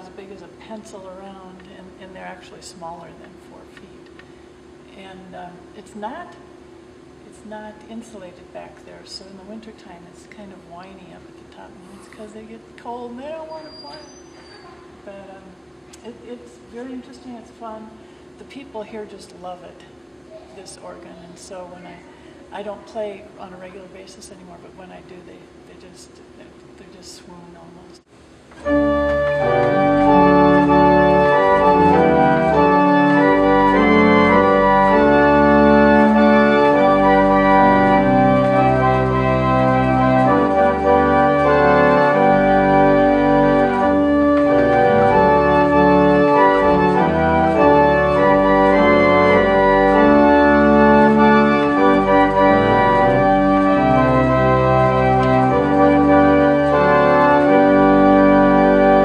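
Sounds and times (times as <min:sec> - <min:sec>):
pipe organ playing chords: 0:28.6 - 0:59.0.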